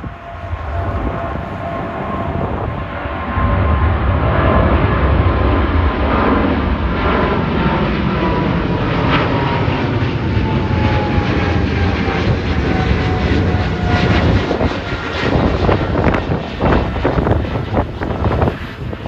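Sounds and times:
jet engines roaring overhead: 0:00.0 - 0:19.0.

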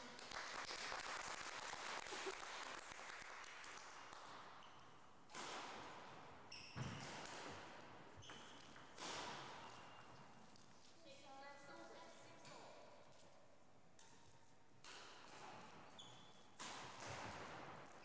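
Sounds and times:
racket striking shuttlecock: 0:05.3 - 0:06.1, 0:06.8 - 0:10.0, 0:14.0 - 0:18.0
shoe squeaks on floor: 0:06.5 - 0:07.2, 0:08.1 - 0:09.0, 0:09.6 - 0:10.4, 0:15.8 - 0:16.6.

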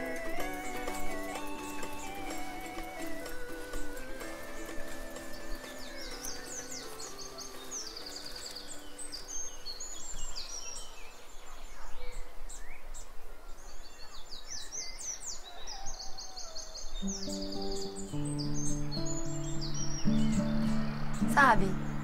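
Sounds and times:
soundtrack music: 0:00.0 - 0:07.6
acoustic guitar playing: 0:00.0 - 0:09.4, 0:17.0 - 0:22.0
birds chirping and singing: 0:00.0 - 0:22.0
outdoor background noise: 0:00.0 - 0:22.0.

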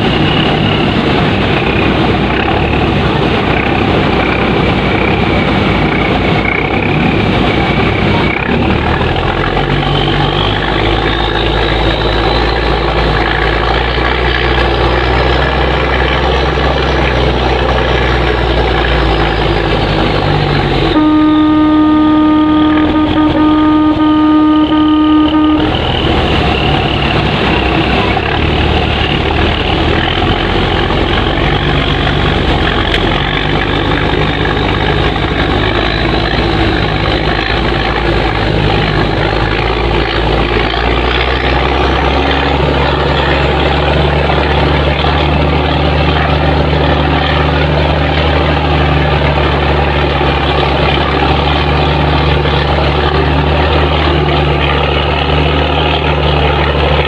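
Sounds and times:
ship engine running: 0:00.0 - 0:57.0
water rushing along hull: 0:00.0 - 0:57.0
boat horn blast: 0:20.6 - 0:28.5.

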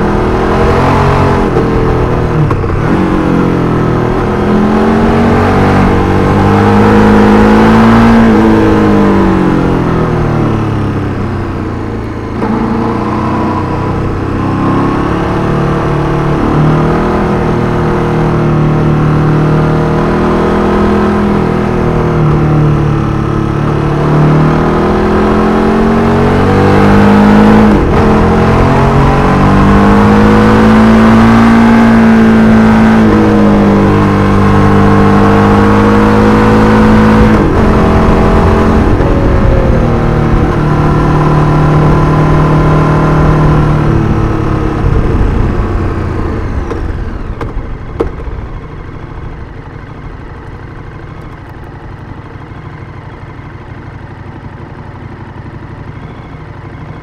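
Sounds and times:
motorcycle engine: 0:00.0 - 0:57.0
wind rush: 0:43.8 - 0:47.8.

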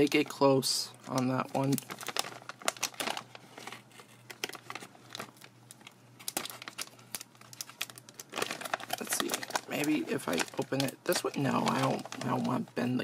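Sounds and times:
foil wrapper crinkling: 0:00.0 - 0:13.0.

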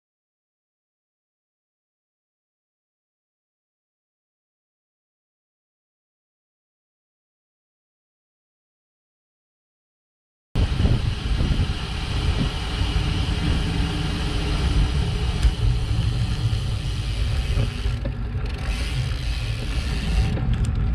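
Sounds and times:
wind buffeting microphone: 0:10.6 - 0:20.9.

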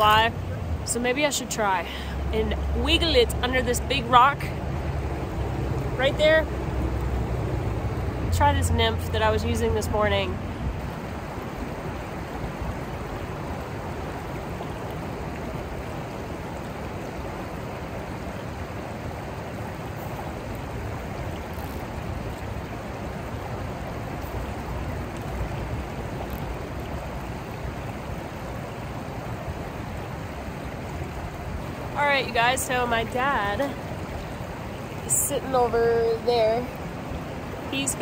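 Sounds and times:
river flowing over stones: 0:00.0 - 0:38.0.

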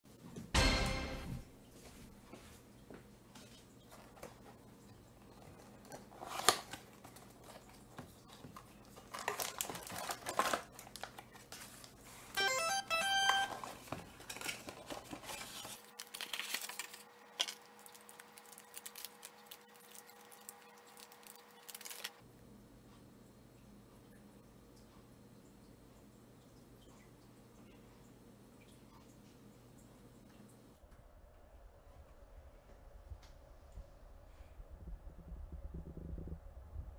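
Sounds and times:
cardboard box and plastic bag rustling: 0:05.2 - 0:12.4, 0:13.2 - 0:22.2
brief electronic chime: 0:12.4 - 0:13.5.

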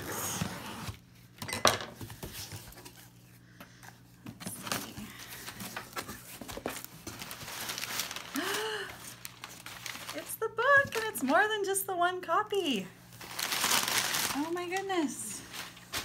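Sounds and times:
packing paper rustling: 0:04.4 - 0:11.5, 0:13.1 - 0:16.0.

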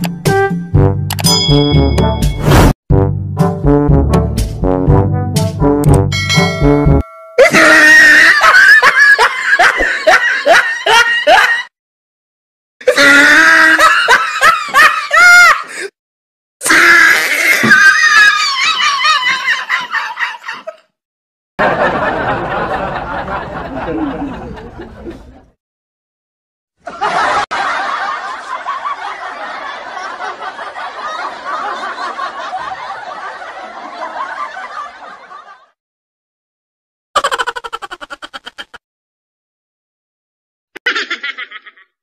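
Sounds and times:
dubbed laughter: 0:07.4 - 0:11.7, 0:17.5 - 0:20.9, 0:21.6 - 0:25.5, 0:26.8 - 0:35.8, 0:37.2 - 0:38.8, 0:40.8 - 0:42.0.

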